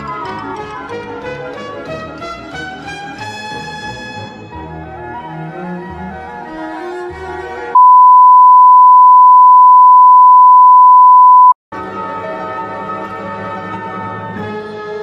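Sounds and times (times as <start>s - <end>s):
loud electronic beep: 7.8s - 11.6s.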